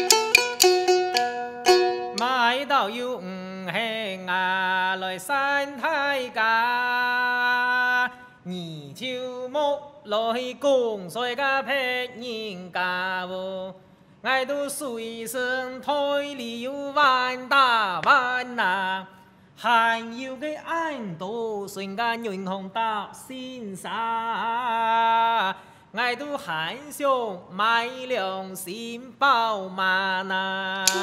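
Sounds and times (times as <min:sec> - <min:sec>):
bamboo clappers clacking: 0:00.0 - 0:02.4
plucked lute notes: 0:00.0 - 0:02.6
person singing chant-like song: 0:30.8 - 0:31.0.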